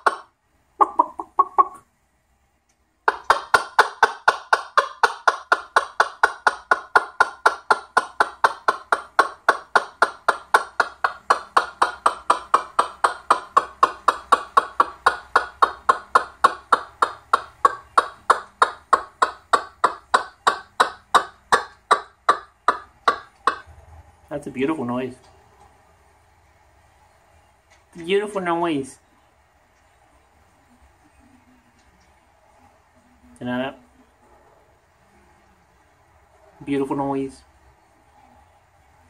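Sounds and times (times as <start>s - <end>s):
cockatoo clicking calls: 0.0s - 1.9s, 3.0s - 23.7s.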